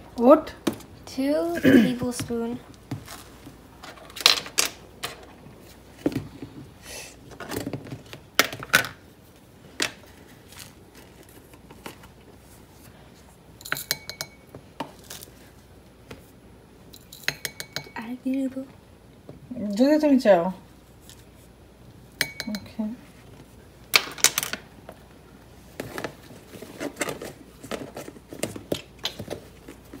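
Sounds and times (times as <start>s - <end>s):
utensil clinking against dish: 13.6s - 14.5s, 17.0s - 18.0s, 22.2s - 22.8s.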